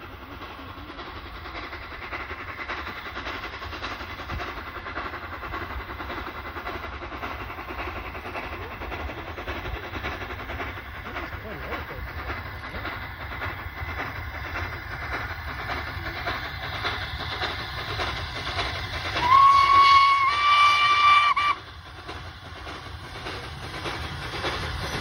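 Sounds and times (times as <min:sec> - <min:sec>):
steam train running: 0:00.0 - 0:25.0
steam locomotive whistle: 0:19.2 - 0:21.7.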